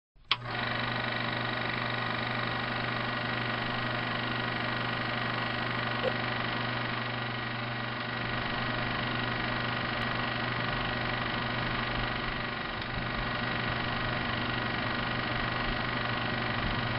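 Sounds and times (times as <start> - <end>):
small click: 0.2 - 0.5
motor hum and whir: 0.2 - 16.9.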